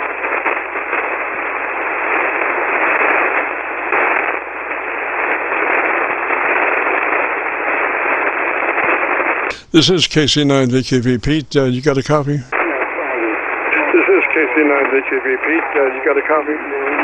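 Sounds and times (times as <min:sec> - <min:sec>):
radio static hiss: 0:09.5 - 0:17.0.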